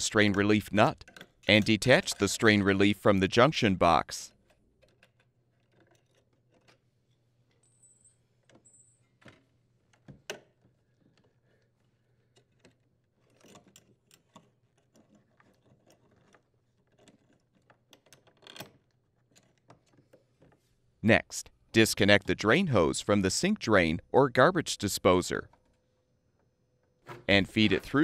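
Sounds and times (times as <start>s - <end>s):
faint metallic clicks and rattles: 4.3s - 20.7s.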